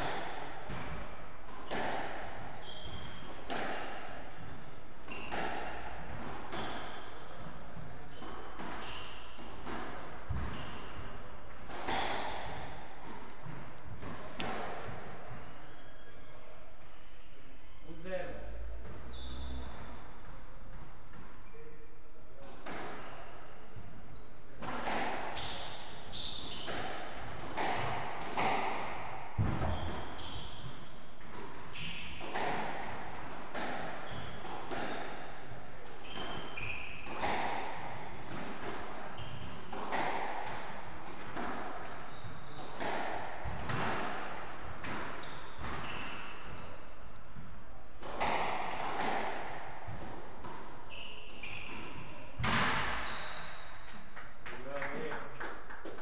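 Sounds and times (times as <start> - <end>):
shoes squeaking on wooden floor: 2.6 - 3.6, 5.1 - 5.4, 10.3 - 11.0, 11.9 - 16.5, 19.0 - 20.0, 25.3 - 27.9, 29.5 - 32.5, 34.0 - 34.5, 35.1 - 40.2, 41.9 - 43.8, 44.8 - 48.6, 50.8 - 52.3, 52.9 - 53.7
squash ball knocks: 9.4 - 14.8, 26.6 - 30.8, 51.8 - 53.0.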